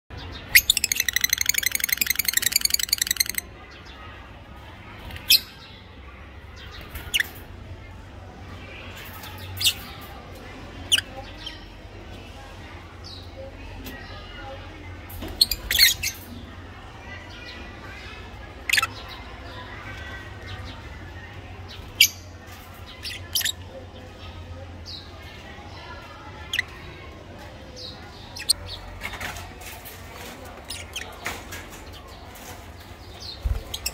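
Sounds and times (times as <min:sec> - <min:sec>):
parakeet chattering trill: 0:00.5 - 0:03.5, 0:18.6 - 0:19.1, 0:23.0 - 0:23.6, 0:26.4 - 0:26.9, 0:28.1 - 0:28.6, 0:30.6 - 0:31.1
parrots squawking: 0:00.6 - 0:03.4.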